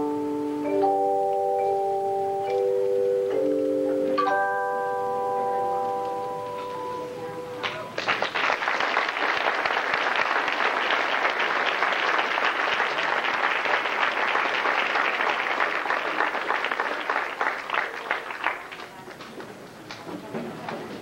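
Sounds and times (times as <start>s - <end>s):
audience applauding: 7.6s - 21.0s.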